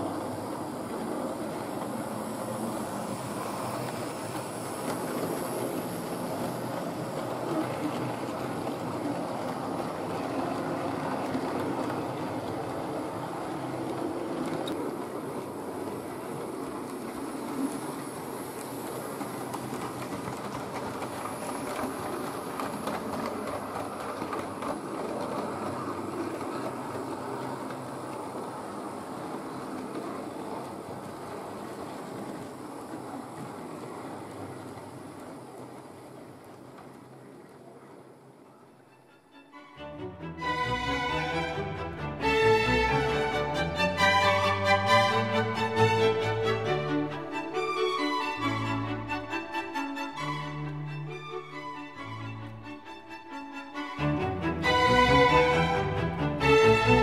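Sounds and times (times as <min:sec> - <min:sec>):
model train wheels rattling: 0:01.6 - 0:32.3.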